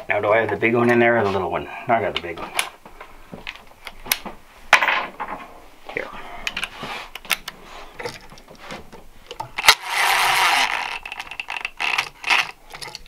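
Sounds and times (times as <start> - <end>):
clicks and knocks of handling: 2.1 - 5.5, 6.4 - 9.8, 10.8 - 13.0
cordless drill driving screw: 9.6 - 12.6.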